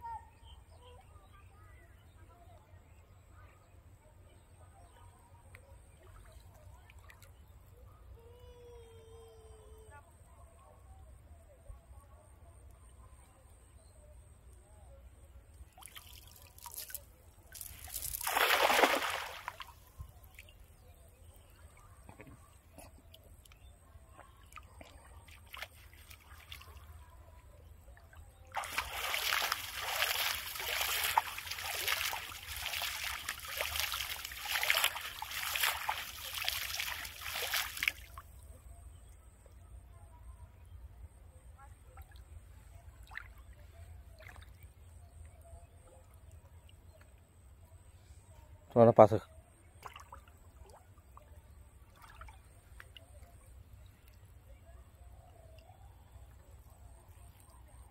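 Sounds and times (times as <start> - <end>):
net splashing onto water: 15.7 - 20.5, 28.5 - 38.2, 49.8 - 50.8
water splashing and sloshing: 15.7 - 20.7, 21.6 - 27.2, 28.0 - 38.5, 51.8 - 53.3.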